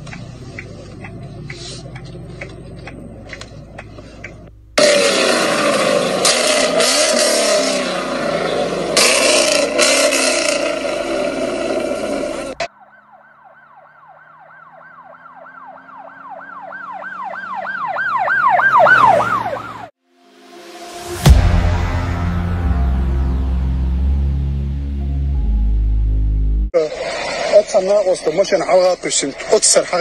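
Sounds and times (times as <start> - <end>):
car engine revving: 0.0 - 12.7
emergency siren wailing: 11.2 - 20.0.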